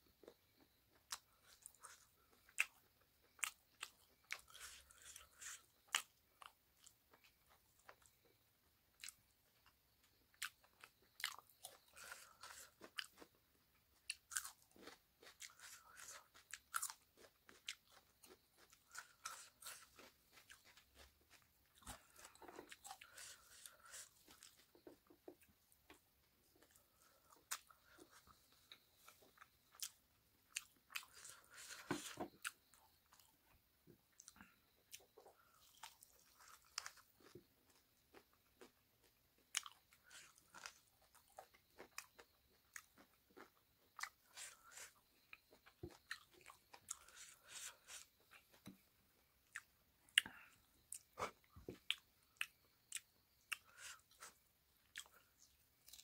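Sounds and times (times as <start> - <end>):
chewing and lip smacks: 9.0 - 13.4, 14.0 - 26.0, 34.2 - 56.0.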